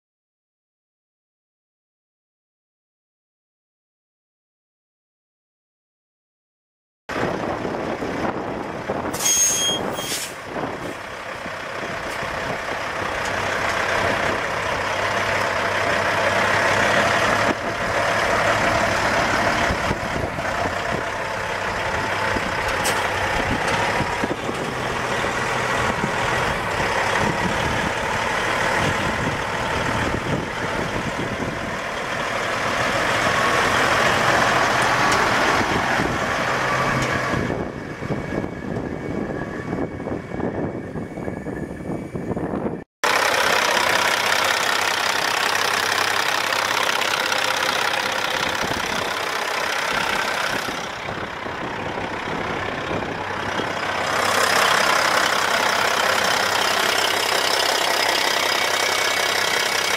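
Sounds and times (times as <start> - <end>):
diesel engine idling: 10.4 - 59.9.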